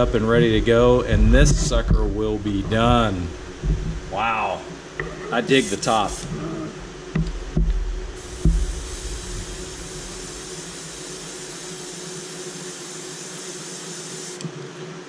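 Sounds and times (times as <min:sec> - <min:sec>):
dull handling thumps: 0:00.0 - 0:04.1, 0:07.1 - 0:08.8
airbrush spraying hiss: 0:05.5 - 0:06.4, 0:08.1 - 0:14.5.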